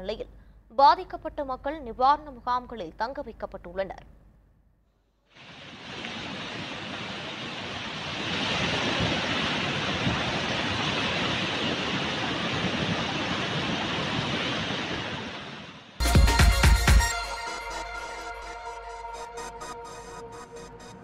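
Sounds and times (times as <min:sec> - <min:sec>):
river rushing: 0:05.3 - 0:16.0.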